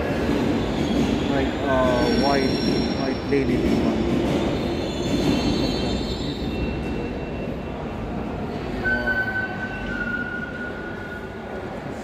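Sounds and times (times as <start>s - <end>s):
high thin wheel squeal: 8.8s - 11.4s.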